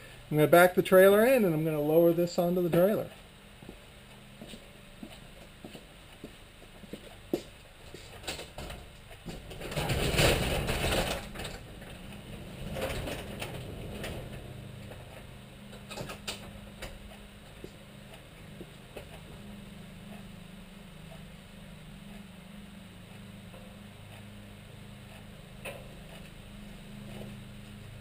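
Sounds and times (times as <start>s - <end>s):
garage door rattling open: 8.2s - 15.2s, 15.8s - 17.0s.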